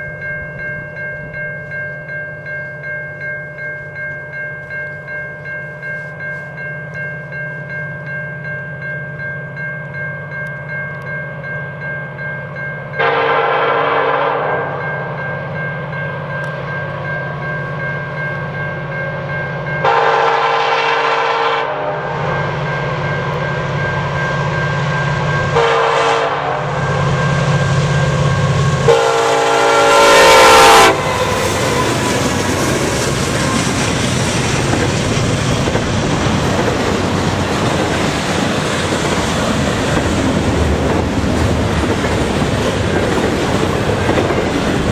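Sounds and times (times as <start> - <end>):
locomotive air horn blasts: 13.0 - 14.8, 19.8 - 22.2, 25.5 - 27.6, 28.8 - 32.1
train wheels clattering on rails: 30.0 - 44.9.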